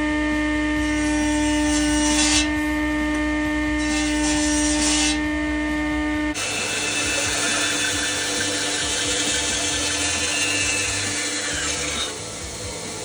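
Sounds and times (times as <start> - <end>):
table saw motor humming: 0.0 - 13.0
saw blade cutting wood: 0.8 - 2.6, 3.8 - 5.2, 6.4 - 12.4.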